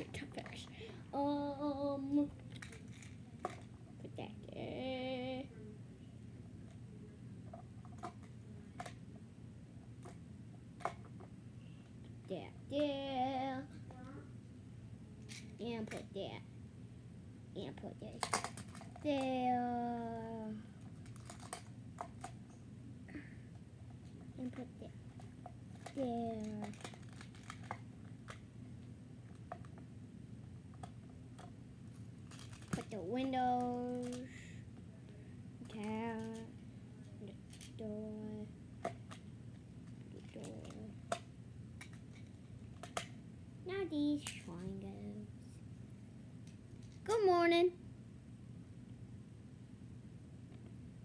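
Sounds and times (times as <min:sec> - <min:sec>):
child singing wavering note: 0:01.2 - 0:02.3.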